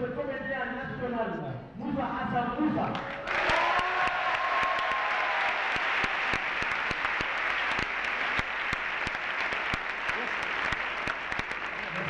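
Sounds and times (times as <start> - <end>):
close distinct hand claps: 2.9 - 12.0
audience applauding: 3.0 - 12.0.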